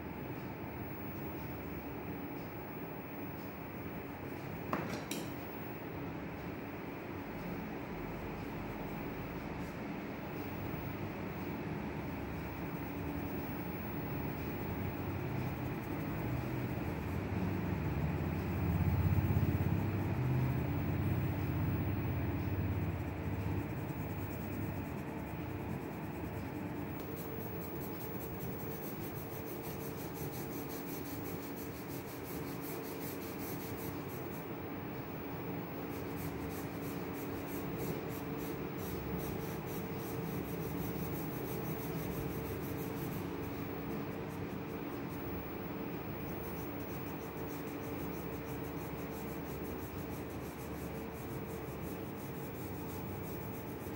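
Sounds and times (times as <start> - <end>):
steady low hum: 0.0 - 53.9
pencil scratching on paper: 12.4 - 34.5, 35.1 - 53.9.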